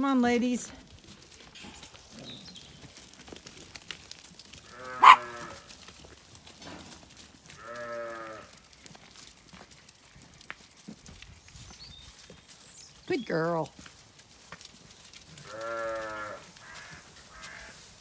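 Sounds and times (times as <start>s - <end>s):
sheep bleating: 4.6s - 5.6s, 7.6s - 8.6s, 15.4s - 17.8s.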